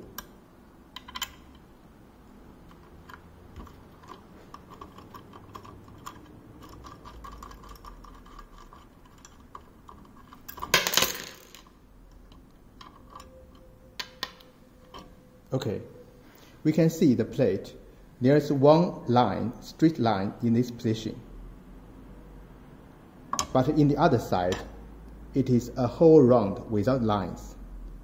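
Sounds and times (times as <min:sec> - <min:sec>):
small metal clicks: 0:00.0 - 0:01.7, 0:02.6 - 0:15.1.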